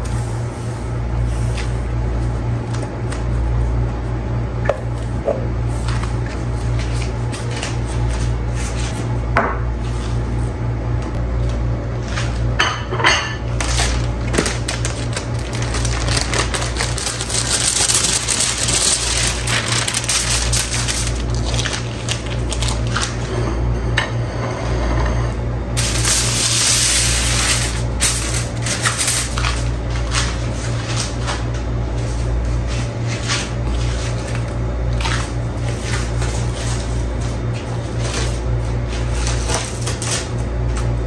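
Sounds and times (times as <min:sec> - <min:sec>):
crinkling on countertop: 0:05.0 - 0:09.1, 0:13.5 - 0:23.3, 0:25.8 - 0:41.0.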